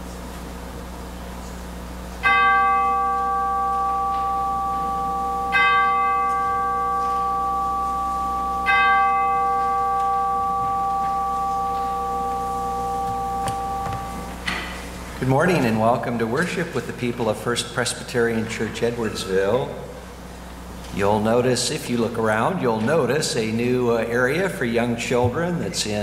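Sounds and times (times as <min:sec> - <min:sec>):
bell ringing: 0:02.2 - 0:14.8.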